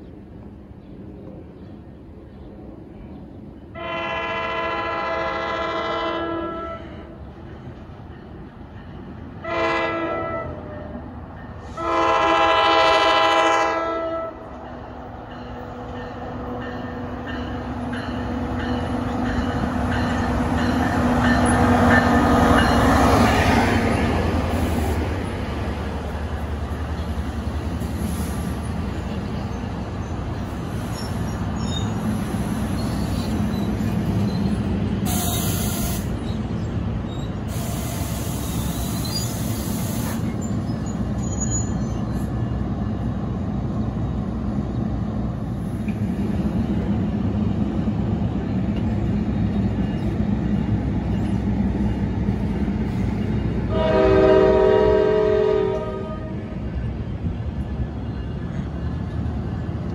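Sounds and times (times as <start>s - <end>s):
train wheels rumbling on rail: 0.0s - 59.9s
train horn: 3.7s - 7.2s, 9.4s - 11.0s, 11.6s - 14.5s, 53.7s - 56.6s.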